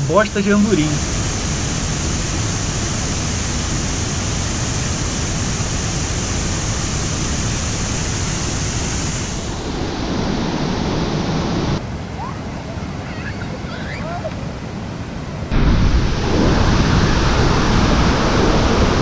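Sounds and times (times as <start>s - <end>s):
waterfall rushing: 0.1s - 11.8s, 15.5s - 19.0s.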